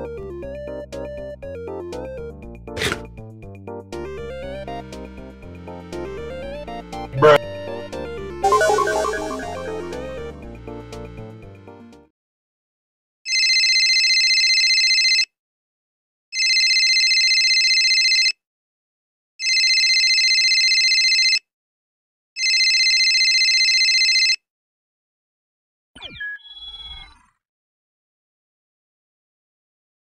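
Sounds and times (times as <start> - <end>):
short sliding sound: 2.8 - 3.1
telephone ringing: 7.2 - 7.8, 8.4 - 10.2, 13.3 - 15.2, 19.4 - 21.4, 22.4 - 24.4.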